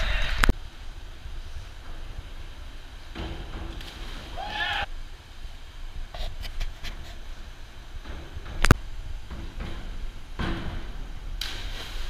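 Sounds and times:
people shouting: 4.3 - 4.9.

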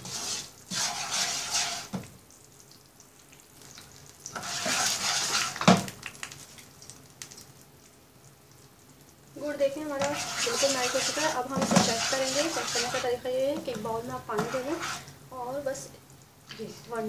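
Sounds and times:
wooden spatula stirring: 0.0 - 2.1, 4.3 - 5.8, 9.9 - 15.2
syrup bubbling and sizzling: 0.0 - 17.0.

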